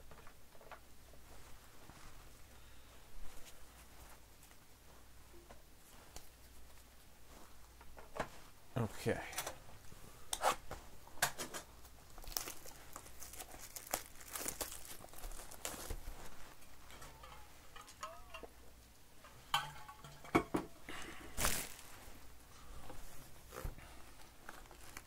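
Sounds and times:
plastic shrink-wrap crinkling: 11.9 - 18.5, 21.3 - 22.2, 24.2 - 25.0.

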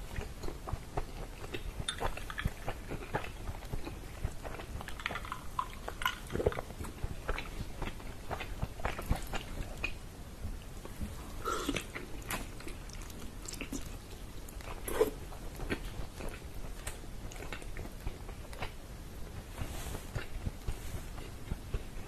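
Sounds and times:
chewing and biting chicken: 0.1 - 10.0.

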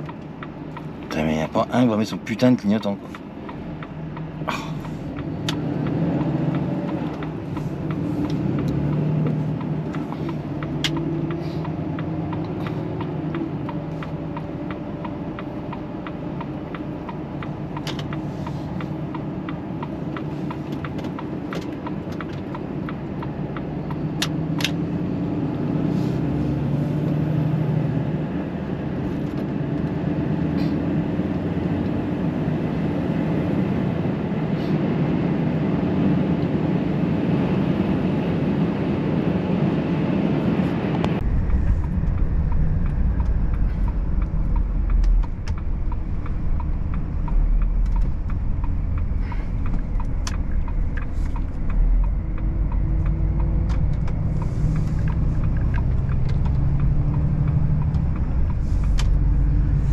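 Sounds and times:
faint regular ticking: 0.0 - 24.0, 41.2 - 59.7
lorry engine droning: 0.0 - 59.9
sharp clicks: 41.0 - 59.8.

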